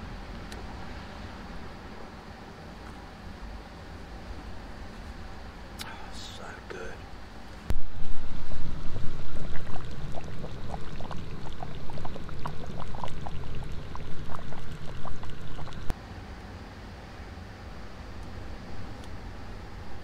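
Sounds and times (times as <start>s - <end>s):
stew bubbling and popping: 8.9s - 15.9s.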